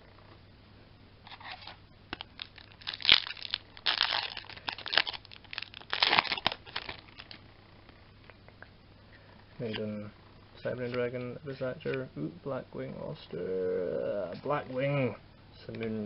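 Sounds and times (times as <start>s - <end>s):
foil wrapper tearing and crinkling: 1.3s - 7.4s.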